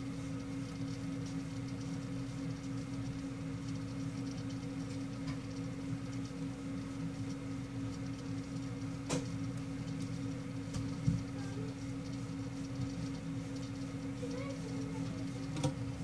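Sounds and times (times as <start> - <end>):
low mechanical hum: 0.0 - 16.0.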